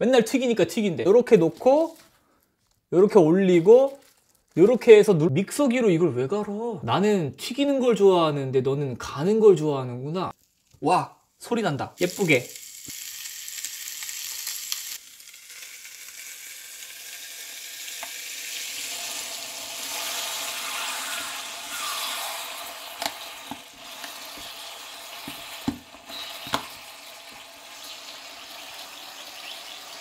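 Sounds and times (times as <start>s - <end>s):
meat sizzling in waffle maker: 12.0s - 30.0s.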